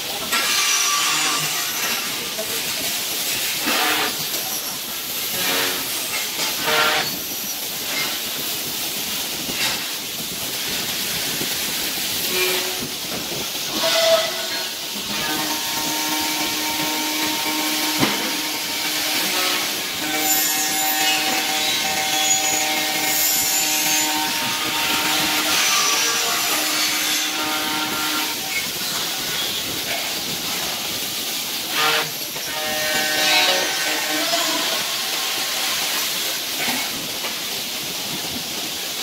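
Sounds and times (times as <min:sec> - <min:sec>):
milling machine cutting metal: 0:00.0 - 0:07.1, 0:13.6 - 0:30.8, 0:31.7 - 0:36.8
constant hiss: 0:00.0 - 0:39.0.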